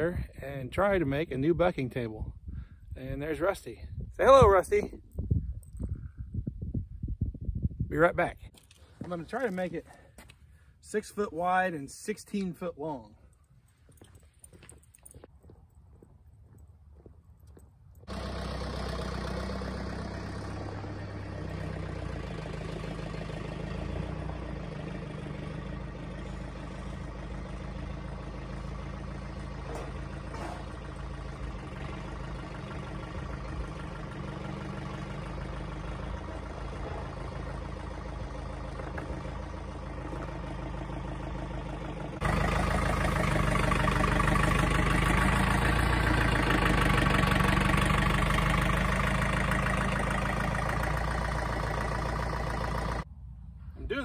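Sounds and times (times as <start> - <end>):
loader tractor engine running: 13.3 - 54.0.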